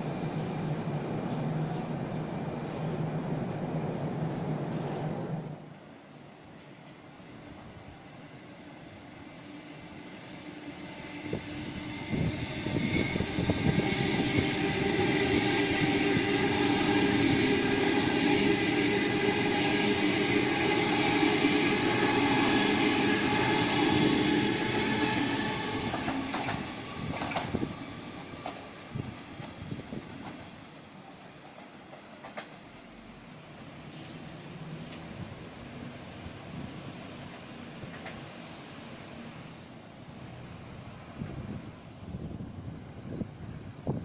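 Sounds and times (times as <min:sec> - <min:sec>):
electric train passing: 0:00.0 - 0:44.0
train motor whine: 0:08.6 - 0:35.4.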